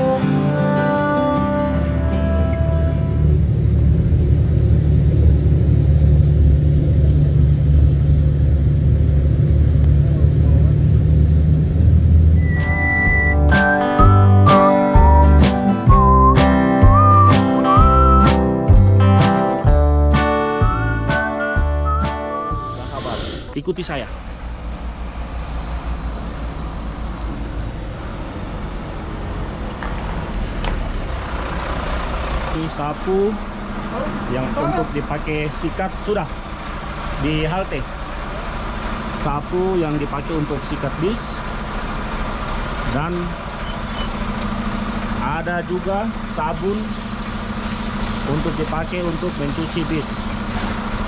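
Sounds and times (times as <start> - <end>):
diesel engine rumbling: 0.0 - 51.0
tyres on wet gravel: 46.2 - 51.0.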